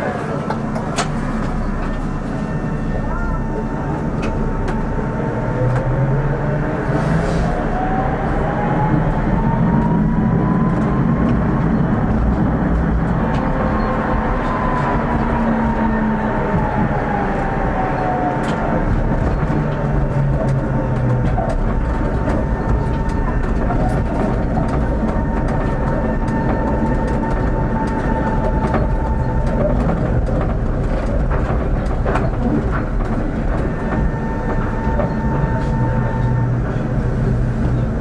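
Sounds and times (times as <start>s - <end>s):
rumble of tram wheels and motors: 0.0s - 38.0s
wheels clicking over rail joints: 18.3s - 38.0s.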